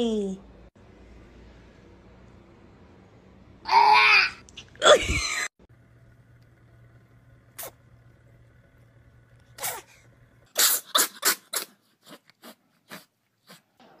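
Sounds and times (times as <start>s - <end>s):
cat sneezing: 9.6s - 13.6s.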